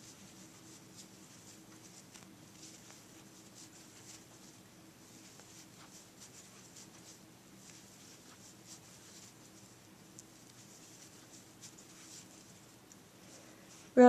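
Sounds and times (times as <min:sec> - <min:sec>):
crochet hook scratching yarn: 0:00.0 - 0:13.0
faint steady hum: 0:00.0 - 0:14.0.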